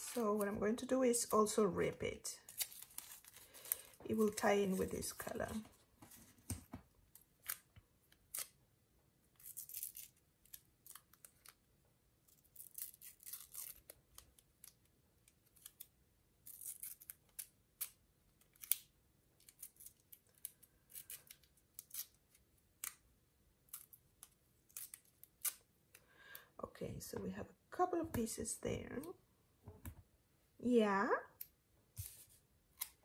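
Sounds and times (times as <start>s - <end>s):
tape tearing: 2.5s - 4.9s, 7.4s - 8.6s, 9.4s - 11.6s, 12.3s - 14.0s.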